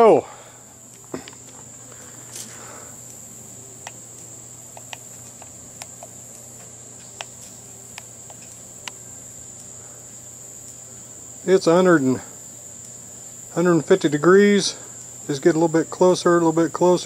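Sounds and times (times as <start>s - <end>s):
faint ticks: 3.8s - 11.0s, 12.8s - 13.1s.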